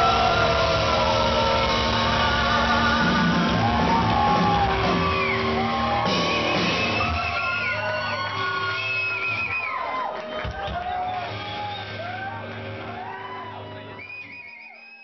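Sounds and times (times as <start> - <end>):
person singing: 0.0 - 5.4
electric guitars: 0.0 - 9.4, 10.4 - 14.1
drums: 0.0 - 14.5.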